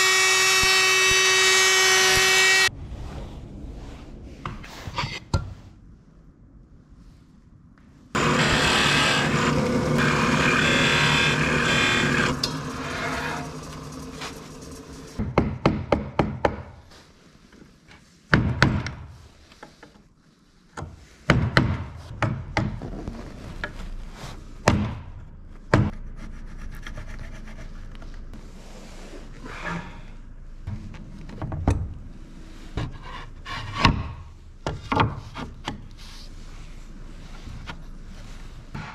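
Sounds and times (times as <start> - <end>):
power tool running: 0.0 - 2.7, 8.2 - 15.2.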